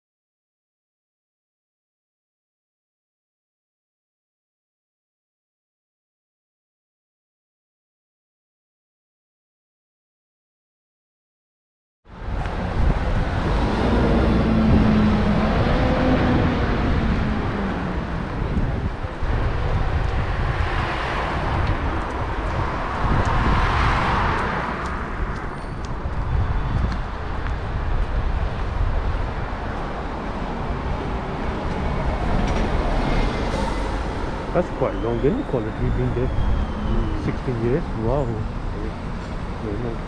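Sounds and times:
passing car engine: 12.1s - 26.0s, 27.0s - 40.0s
low rumble of traffic: 12.1s - 40.0s.

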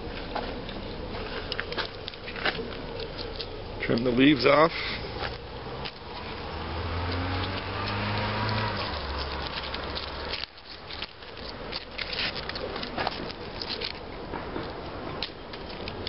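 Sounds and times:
low rumble and hiss: 0.0s - 7.4s
leaves crackling and rustling: 0.0s - 16.0s.

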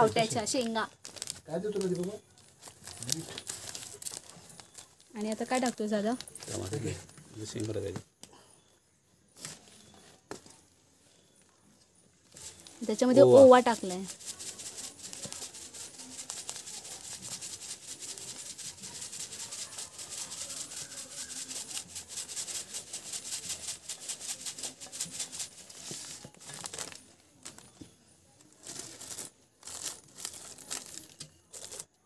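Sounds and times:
seeds trickling onto leaves: 0.0s - 7.8s, 12.3s - 27.7s
plastic bag crinkling: 0.0s - 8.0s, 12.2s - 27.8s, 28.4s - 32.0s
rustles: 9.3s - 31.9s.

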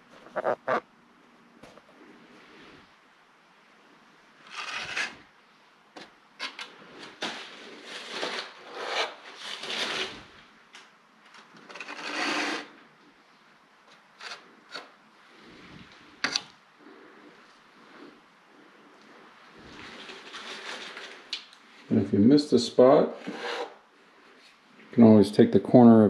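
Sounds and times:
metal knife scraping joint compound: 23.1s - 23.8s.

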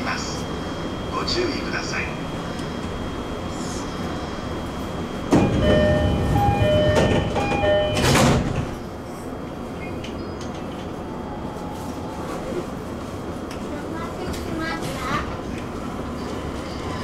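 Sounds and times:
train doors thudding shut: 5.2s - 8.8s
two-tone door chime: 5.3s - 8.4s.

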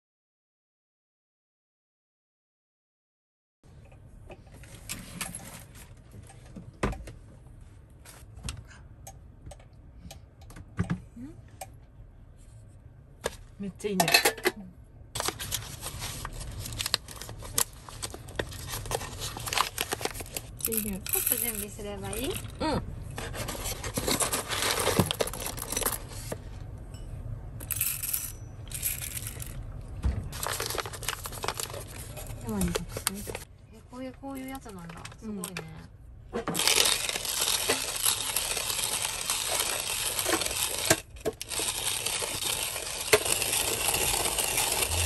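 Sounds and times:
paper bag crinkling: 15.2s - 21.0s, 23.3s - 26.3s, 30.3s - 33.4s, 36.6s - 45.0s
coffee beans rattling and clicking: 18.0s - 22.6s, 27.6s - 29.6s, 36.6s - 45.0s.

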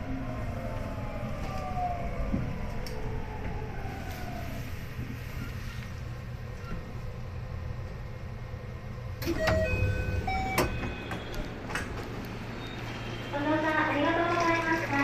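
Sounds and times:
train low hum: 0.0s - 15.0s
sliding door opening: 9.2s - 13.1s.

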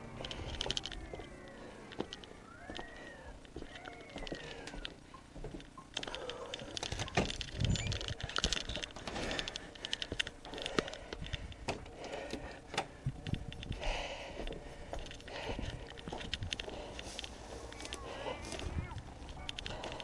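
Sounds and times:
footsteps on wooden porch: 0.0s - 20.0s.

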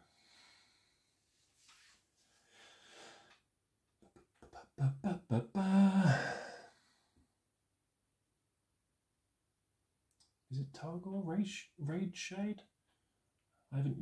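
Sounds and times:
man breathing: 0.0s - 3.4s, 5.6s - 7.2s
voiced grunts: 4.6s - 6.7s.

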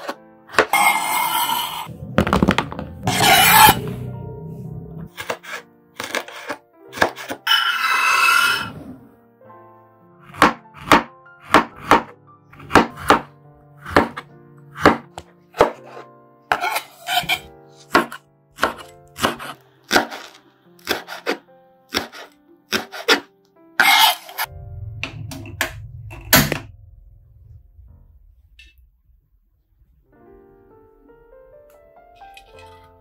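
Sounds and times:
knife chopping on cutting board: 10.3s - 14.2s, 14.8s - 24.3s
soft plucked-string music: 24.5s - 28.8s.

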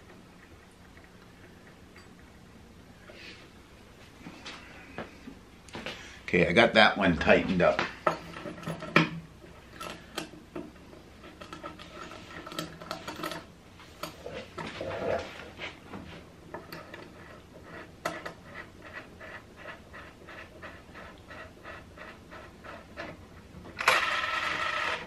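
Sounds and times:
metal rod clicking and scraping: 11.2s - 14.7s.

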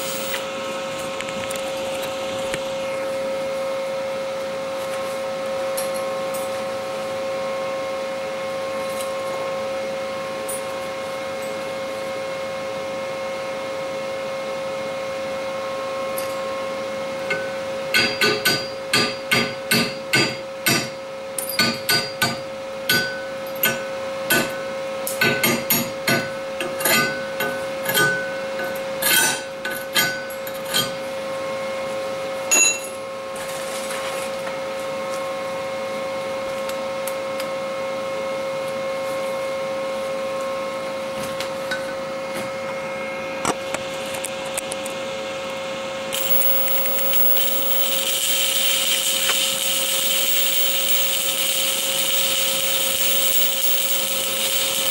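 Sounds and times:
welding arc hissing: 0.0s - 0.5s, 46.1s - 54.9s
steady hum: 0.0s - 5.2s, 42.6s - 54.9s.

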